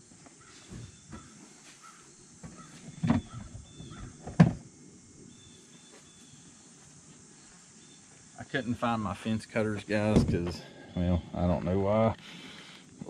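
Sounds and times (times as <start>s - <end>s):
faint outdoor background: 0.0s - 13.0s
high insect drone: 0.0s - 13.0s
dull thumps: 2.4s - 4.7s, 10.1s - 10.7s.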